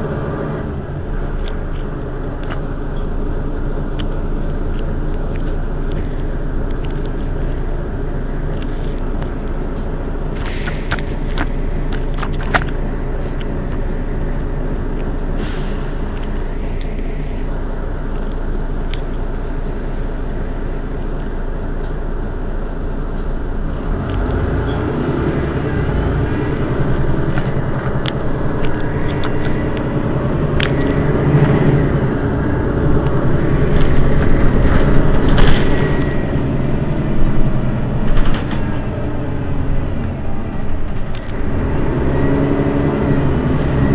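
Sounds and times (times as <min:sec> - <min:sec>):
bus engine idling: 0:00.0 - 0:43.9
sharp clicks: 0:26.2 - 0:36.2.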